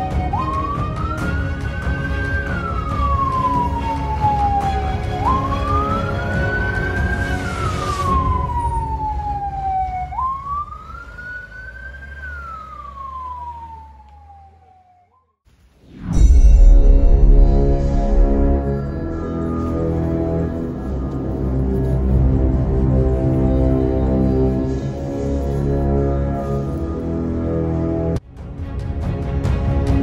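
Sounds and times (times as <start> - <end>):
siren wailing: 0.0 - 15.3, 16.5 - 28.2
steady low rumble: 16.0 - 27.2.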